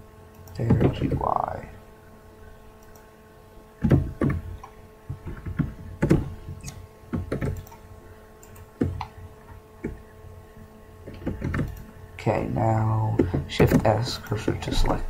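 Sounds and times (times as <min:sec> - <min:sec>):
faint electrical hum: 0:00.0 - 0:15.0
keyboard and mouse clicks: 0:03.8 - 0:07.8, 0:08.4 - 0:09.2, 0:11.0 - 0:11.9.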